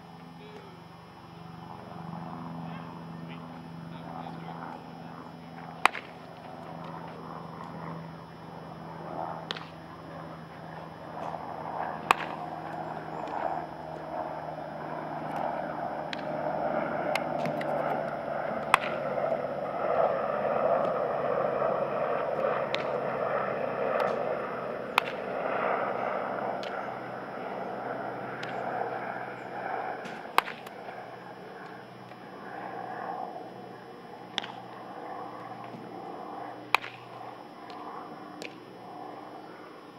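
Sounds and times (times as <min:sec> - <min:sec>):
ball snapping into glove: 0:05.8 - 0:06.2, 0:09.4 - 0:09.8, 0:12.0 - 0:12.4, 0:16.1 - 0:16.3, 0:17.1 - 0:17.8, 0:18.6 - 0:19.0, 0:22.7 - 0:23.0, 0:24.0 - 0:24.2, 0:25.0 - 0:25.2, 0:28.4 - 0:28.6, 0:30.0 - 0:30.8, 0:34.3 - 0:34.6, 0:36.7 - 0:37.8, 0:38.4 - 0:38.6
bat hitting baseball: 0:05.8 - 0:06.3, 0:09.4 - 0:09.8, 0:12.0 - 0:12.5, 0:18.6 - 0:19.0, 0:22.7 - 0:23.0, 0:24.9 - 0:25.3, 0:30.0 - 0:30.8, 0:34.3 - 0:34.6, 0:36.7 - 0:37.2.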